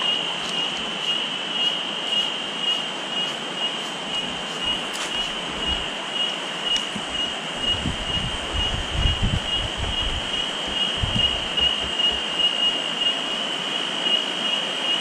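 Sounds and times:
high pulsing whine: 0.0 - 15.0
river water rushing: 0.0 - 15.0
wind buffeting microphone: 4.1 - 6.0, 6.9 - 12.5.

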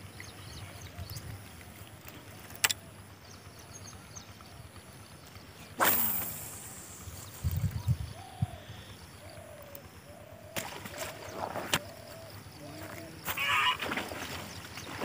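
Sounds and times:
sharp clicks: 2.5 - 2.8
bird honking calls: 13.2 - 14.0.

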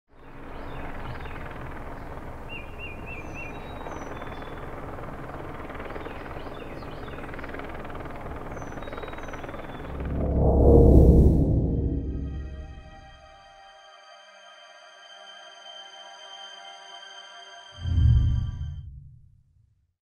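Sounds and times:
small birds chirping: 0.2 - 5.0, 5.6 - 9.9
deep swell: 9.6 - 13.5, 17.8 - 19.3.

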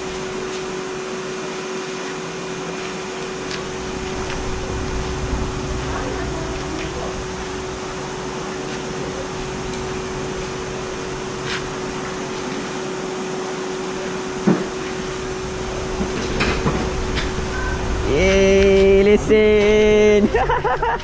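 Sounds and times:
paddle aerators humming: 0.0 - 21.0
water churning: 3.0 - 20.8
constant tone: 3.0 - 21.0.

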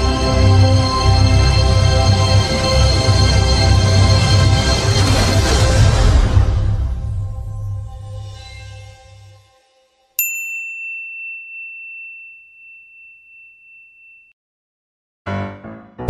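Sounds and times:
music: 0.0 - 10.2, 15.3 - 16.0
bright bell ding: 10.2 - 14.3
piano music: 15.3 - 16.0.

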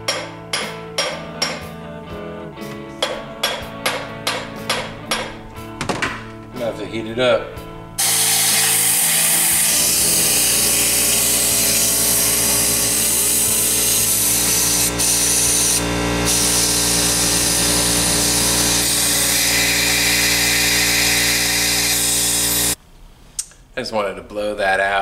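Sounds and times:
compressed air blow gun hissing: 8.0 - 20.0.

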